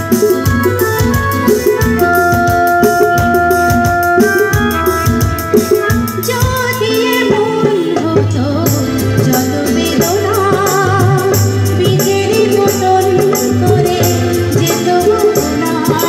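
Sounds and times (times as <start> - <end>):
drum and percussion beat: 0.0 - 16.0
held keyboard notes: 0.0 - 16.0
woman singing: 6.2 - 16.0.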